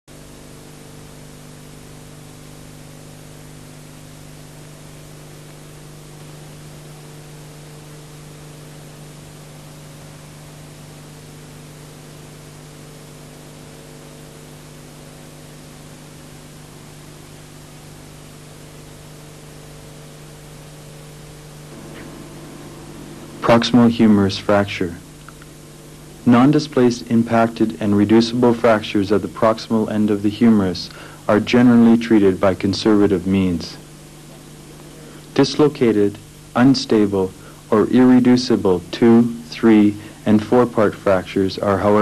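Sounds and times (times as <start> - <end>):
low electrical hum: 0.0 - 42.0
tape hiss: 0.1 - 42.0.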